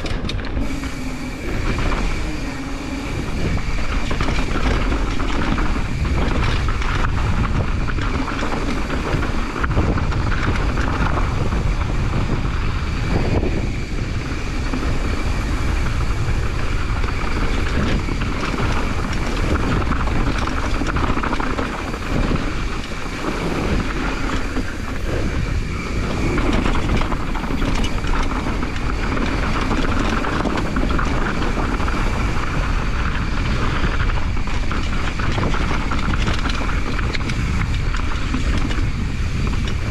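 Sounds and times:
bike knocking and rattling: 0:00.0 - 0:39.9
wind rushing over microphone: 0:00.0 - 0:39.9.

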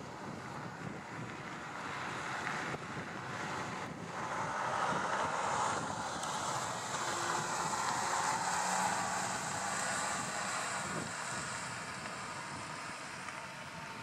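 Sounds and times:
distant turboprop engine: 0:00.0 - 0:14.0
gusty wind on microphone: 0:00.0 - 0:14.0
high hiss: 0:05.3 - 0:13.9.

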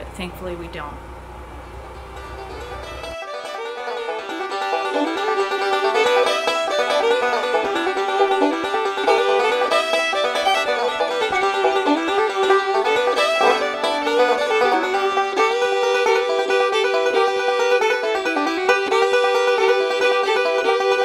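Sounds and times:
bluegrass plucked-string tune: 0:02.0 - 0:21.0.

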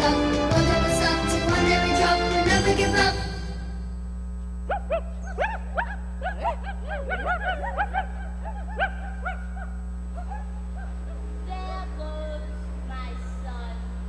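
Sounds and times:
low hum: 0:02.1 - 0:14.0
high yips and whimpers: 0:04.7 - 0:11.0.

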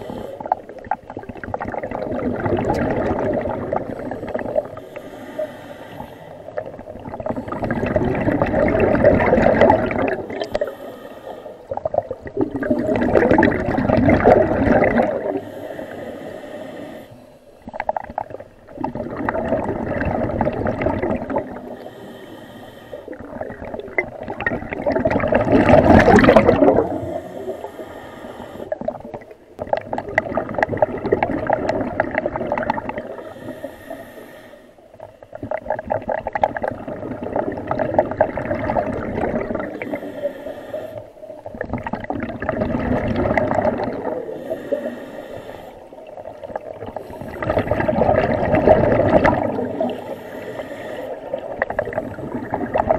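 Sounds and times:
regulator hissing inhale: 0:00.0 - 0:00.5, 0:04.0 - 0:06.6, 0:10.2 - 0:11.7, 0:15.2 - 0:17.7, 0:21.6 - 0:23.2, 0:26.8 - 0:28.8, 0:33.1 - 0:34.9, 0:39.7 - 0:41.2, 0:44.2 - 0:46.2, 0:47.0 - 0:47.7, 0:49.5 - 0:52.6
gurgling exhaled bubbles: 0:00.0 - 0:10.8, 0:11.6 - 0:16.0, 0:17.7 - 0:22.0, 0:23.0 - 0:28.0, 0:28.6 - 0:34.0, 0:35.0 - 0:52.9.

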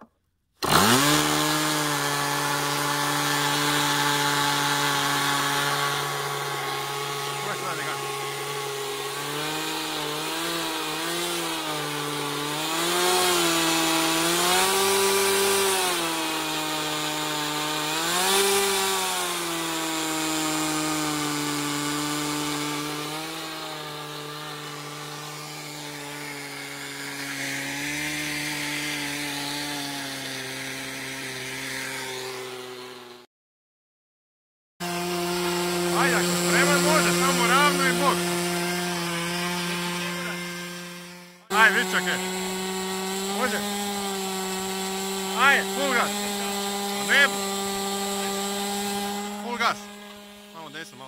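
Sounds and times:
model airplane engine running: 0:03.2 - 0:09.3, 0:35.4 - 0:51.0.

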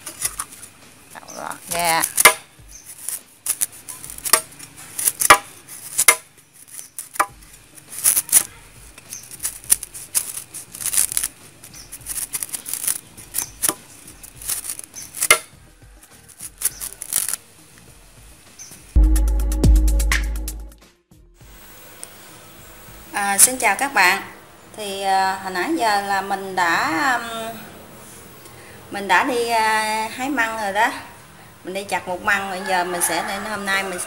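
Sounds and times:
knife slicing bamboo shoot: 0:01.8 - 0:15.5, 0:16.2 - 0:17.4.

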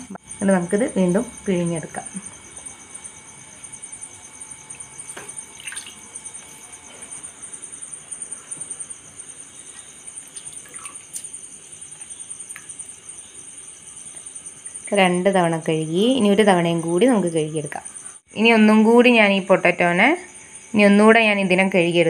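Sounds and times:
water splashing in a bowl: 0:04.7 - 0:06.7, 0:09.7 - 0:12.9.

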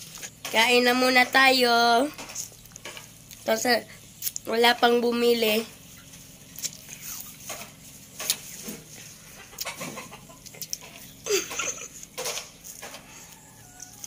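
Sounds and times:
chicken clucking: 0:08.9 - 0:11.2, 0:12.0 - 0:14.0.

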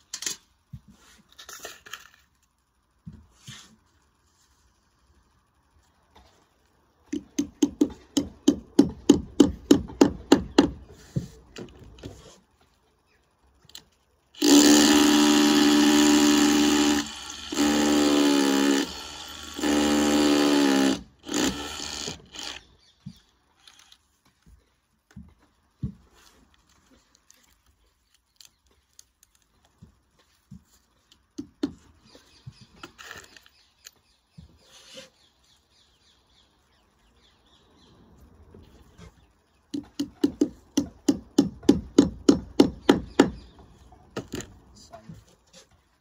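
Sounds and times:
power drill running: 0:14.4 - 0:22.7.

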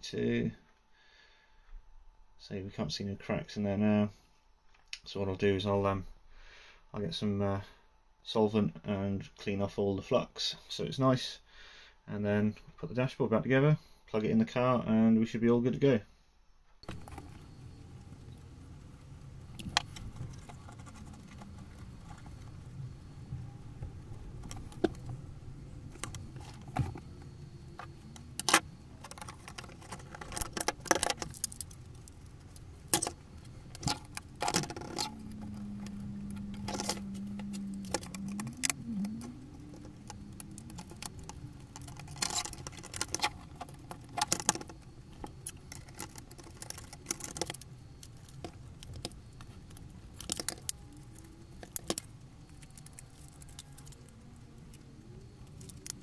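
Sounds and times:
low steady drone: 0:16.8 - 0:56.0
plastic parts clicking and clattering: 0:25.9 - 0:38.8, 0:39.6 - 0:54.8.

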